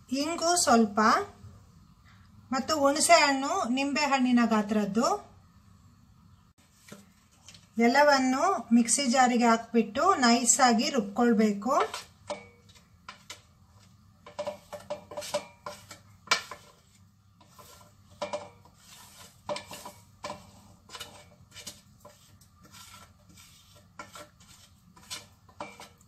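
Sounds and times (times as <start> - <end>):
plastic spoon scraping and tapping: 11.8 - 26.0.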